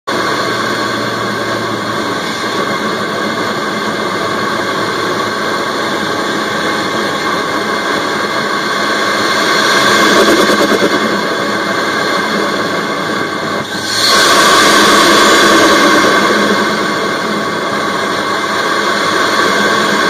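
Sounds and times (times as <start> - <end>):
faint turbo whine: 0.1 - 20.0
engine intake rushing hiss: 13.6 - 20.0.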